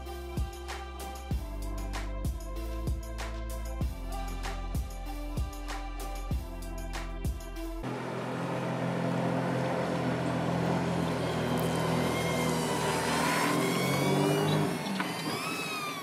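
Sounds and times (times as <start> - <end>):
background music: 0.0 - 7.9
motor running: 7.8 - 16.0.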